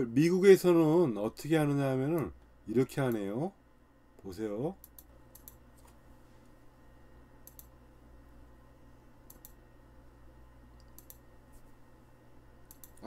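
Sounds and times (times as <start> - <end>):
low steady hum: 0.0 - 13.0
faint short clicks: 10.8 - 11.2, 12.6 - 13.0.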